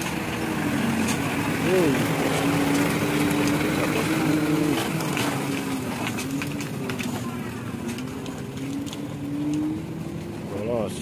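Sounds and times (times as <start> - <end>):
diesel truck engine running: 0.0 - 11.0.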